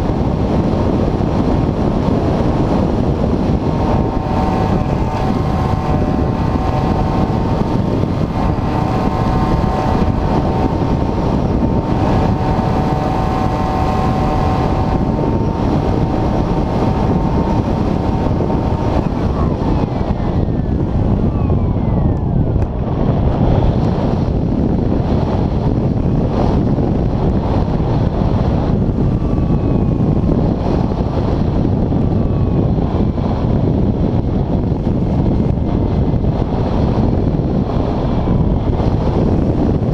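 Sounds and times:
wind rushing over microphone: 0:00.0 - 0:39.9
electric motor whine: 0:00.1 - 0:33.5.

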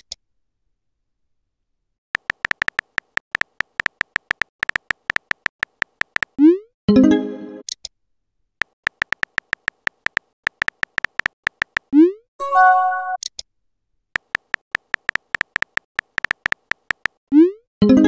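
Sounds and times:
keyboard tap clicks: 0:02.2 - 0:06.4, 0:08.6 - 0:11.9, 0:14.2 - 0:17.2
electronic message chime: 0:12.4 - 0:13.2.

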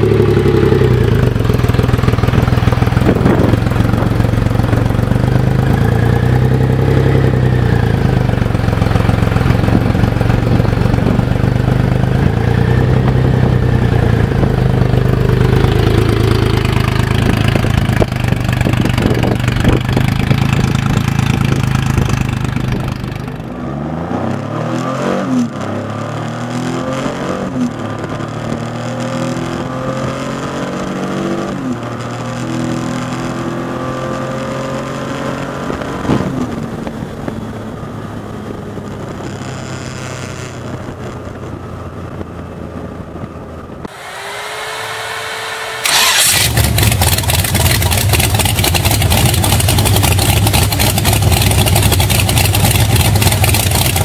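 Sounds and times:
motorcycle engine revving through gears: 0:00.0 - 0:54.0
loud engine starting and running: 0:43.8 - 0:54.0
brief rising whine: 0:43.9 - 0:46.6.

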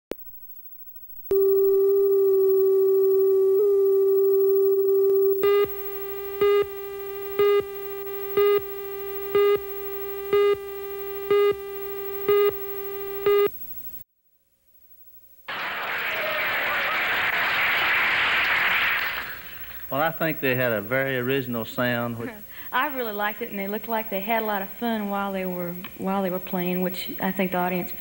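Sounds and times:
steady test tone: 0:00.2 - 0:14.0, 0:19.3 - 0:28.0
countdown beeps: 0:01.3 - 0:13.5.

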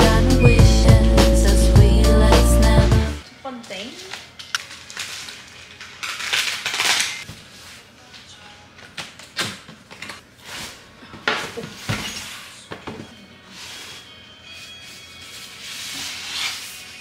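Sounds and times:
packaging rustling: 0:04.3 - 0:07.3.

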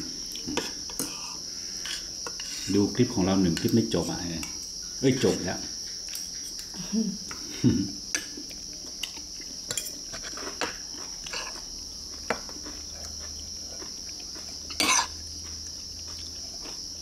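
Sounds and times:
insects chirring: 0:00.0 - 0:17.0.

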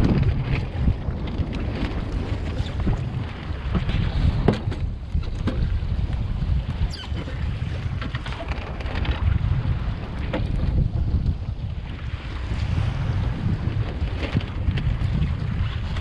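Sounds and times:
waves slapping against hull: 0:00.0 - 0:16.0
wind buffeting microphone: 0:00.0 - 0:16.0
short rising squeak: 0:06.9 - 0:07.4.

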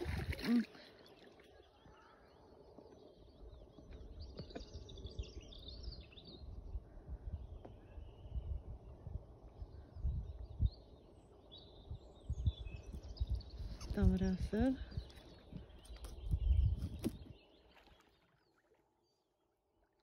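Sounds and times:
small birds chirping: 0:00.1 - 0:19.3
gusty wind rumble on microphone: 0:03.4 - 0:17.4.

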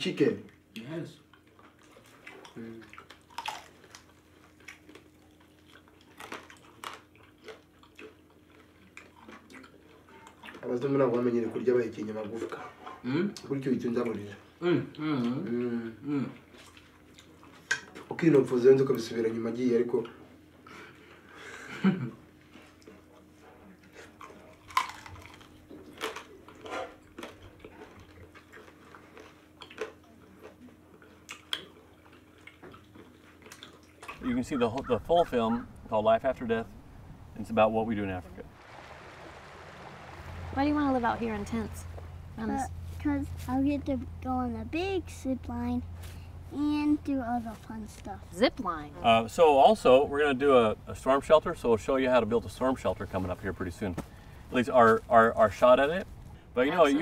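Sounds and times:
faint steady hum: 0:00.0 - 0:57.0
wet chewing and crunching: 0:00.5 - 0:11.0, 0:16.4 - 0:18.1, 0:22.5 - 0:35.4.

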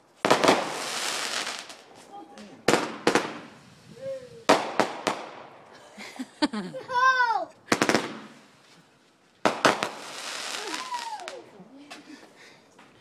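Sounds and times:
fireworks cracks and bangs: 0:00.2 - 0:05.6, 0:07.7 - 0:08.7, 0:09.4 - 0:12.0.

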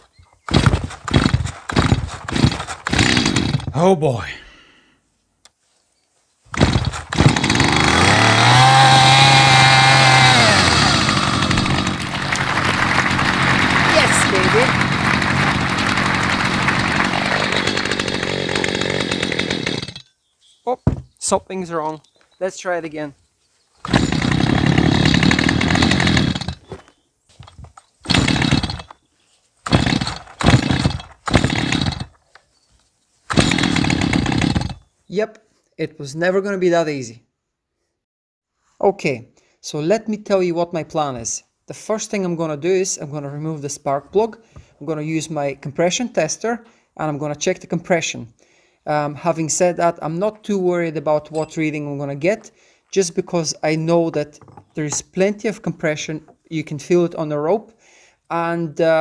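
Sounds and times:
starter rope pull: 0:00.4 - 0:03.8, 0:06.5 - 0:20.0, 0:23.8 - 0:26.8, 0:27.4 - 0:29.0, 0:29.6 - 0:32.3, 0:33.3 - 0:34.9
chainsaw engine revving: 0:00.5 - 0:03.7, 0:06.5 - 0:20.0, 0:23.8 - 0:26.7, 0:28.0 - 0:28.9, 0:29.7 - 0:32.2, 0:33.3 - 0:34.8.

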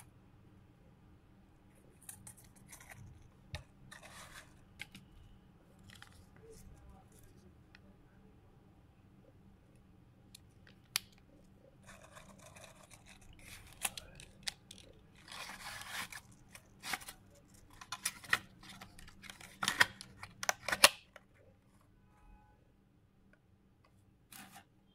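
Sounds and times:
plastic clicks and snaps: 0:10.3 - 0:11.3.

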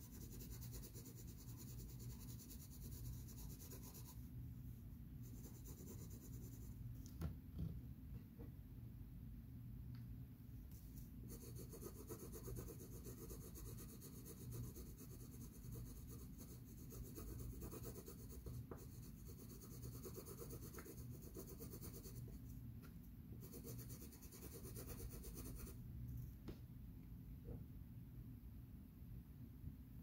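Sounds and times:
pencil scratching on paper: 0:00.0 - 0:04.2, 0:05.2 - 0:06.7, 0:11.3 - 0:22.4, 0:23.4 - 0:25.8.

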